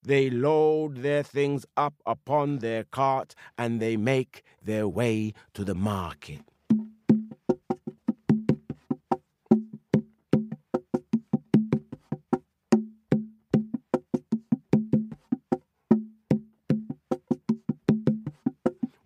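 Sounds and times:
pitched wooden percussion knocks: 6.4s - 19.0s.

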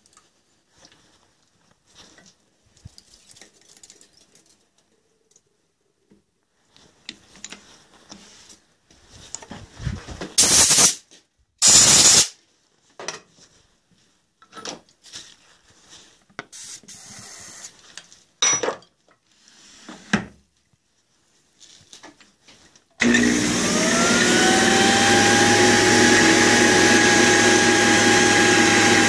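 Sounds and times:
loud hissing sprays: 10.4s - 11.0s, 11.6s - 12.3s, 16.5s - 17.7s.

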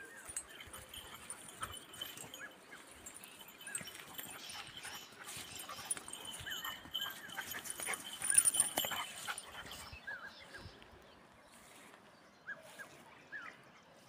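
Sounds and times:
dogs whimpering: 0.3s - 2.4s, 3.1s - 10.0s.

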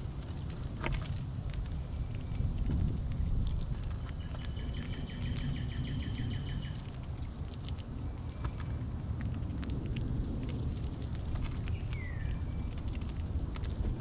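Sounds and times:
squirrel cracking seeds: 0.0s - 14.0s
steady low rumble: 0.0s - 14.0s
songbird singing: 4.0s - 6.9s, 11.2s - 14.0s.

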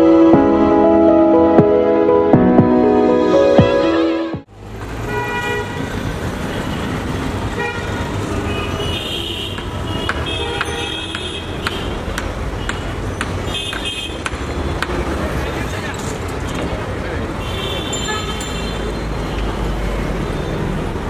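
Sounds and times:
intro music: 0.0s - 4.5s
road traffic noise: 0.0s - 21.0s
vehicle horn toots: 7.6s - 12.0s.

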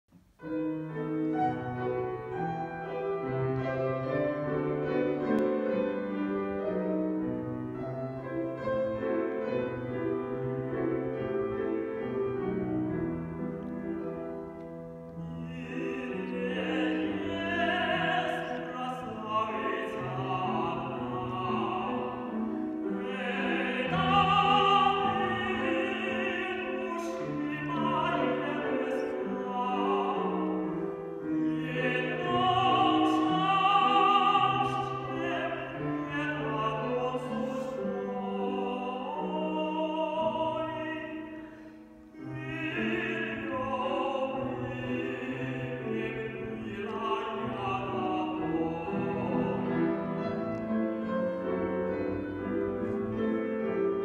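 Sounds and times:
grand piano playing: 0.2s - 54.0s
man singing operatically: 15.3s - 22.4s, 23.0s - 30.6s, 31.4s - 41.2s, 42.3s - 49.8s.

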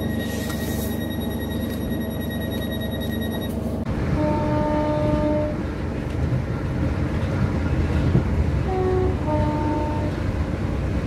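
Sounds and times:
door closing warning tone: 0.0s - 3.6s
short steady tone: 0.0s - 3.8s
train low rumble: 0.0s - 11.0s.

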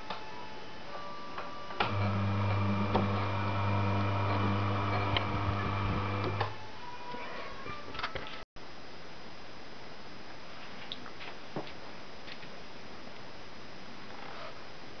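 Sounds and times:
electric motor humming: 1.8s - 6.6s.

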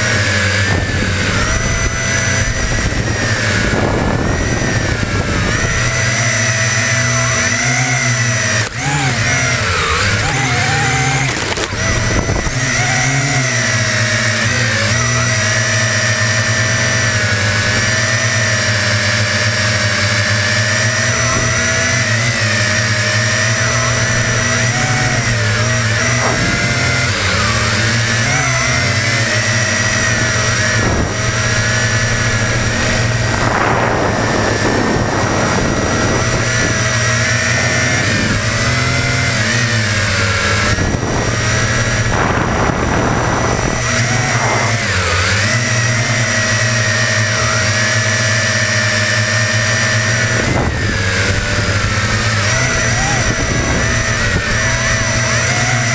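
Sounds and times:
quadcopter motors whining: 0.0s - 55.9s
rushing noise: 29.4s - 38.7s.

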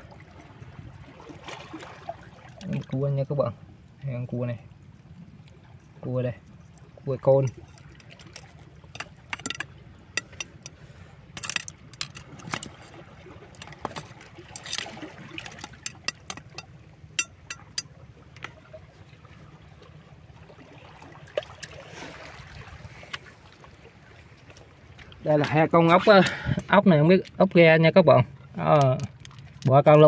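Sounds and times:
water lapping: 0.0s - 30.0s
stones and shells clattering: 11.4s - 13.0s.

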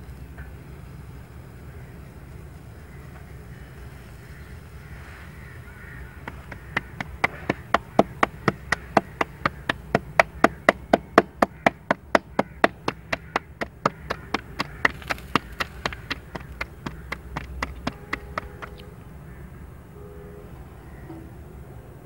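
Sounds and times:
dough slapped between palms: 6.3s - 18.8s.

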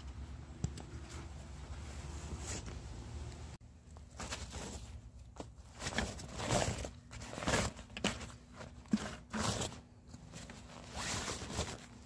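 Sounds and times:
nylon fabric rustling: 3.8s - 12.0s.

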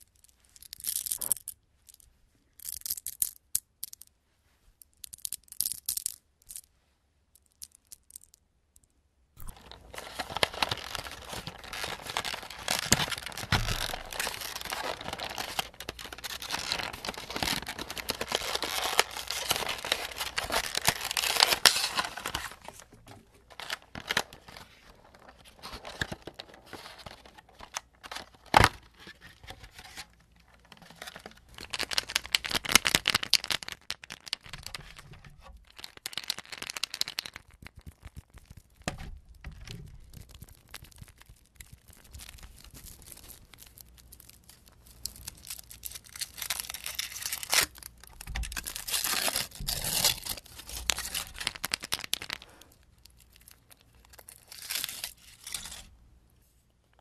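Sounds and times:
plastic tray crinkling: 9.4s - 55.9s.

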